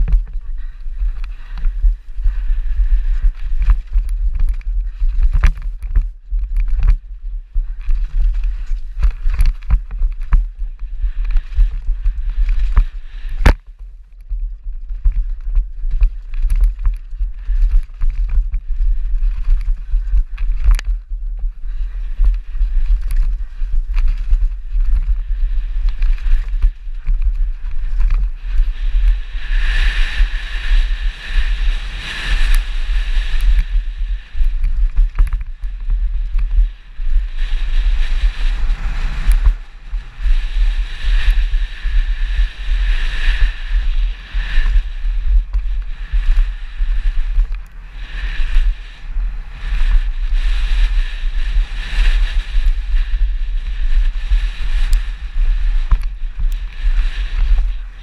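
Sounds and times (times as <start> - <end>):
bike knocking and rattling: 0.0 - 46.5
wind buffeting microphone: 0.0 - 58.0.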